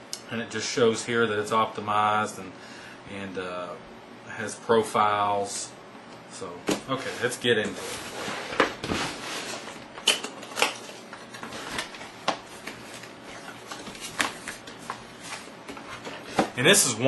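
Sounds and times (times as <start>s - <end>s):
cardboard scraping: 6.9s - 9.8s.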